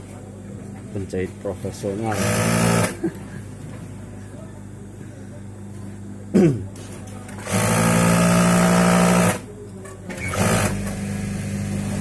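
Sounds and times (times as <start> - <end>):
sewing machine stitching: 7.4 - 9.4, 10.1 - 12.0.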